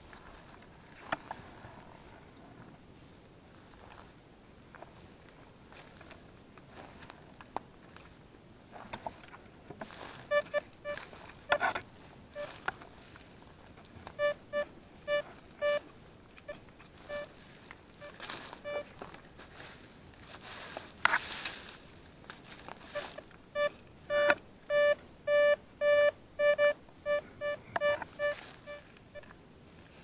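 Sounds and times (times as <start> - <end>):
twigs and leaves crunching underfoot: 3.0 - 14.2, 15.3 - 23.5, 28.1 - 30.0
metal detector beeps: 10.3 - 11.6, 12.3 - 12.6, 14.2 - 17.4, 18.0 - 19.0, 22.9 - 29.3.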